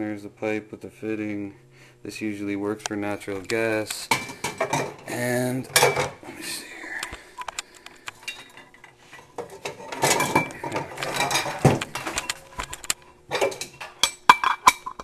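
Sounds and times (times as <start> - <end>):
metal parts rattling and scraping: 8.2 - 15.0.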